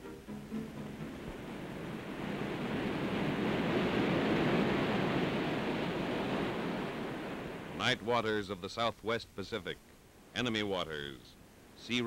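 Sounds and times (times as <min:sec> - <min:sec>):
ocean surf waves: 0:00.0 - 0:12.0.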